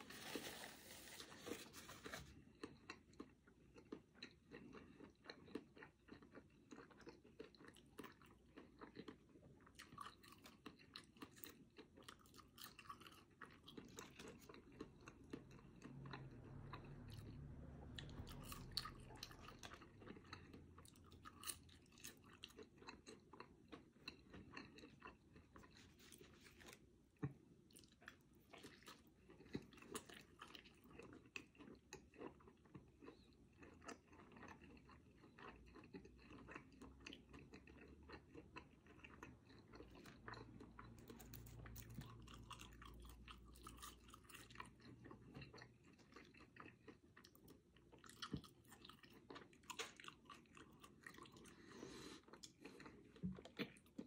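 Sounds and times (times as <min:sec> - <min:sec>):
close-miked chewing: 0:00.0 - 0:54.0.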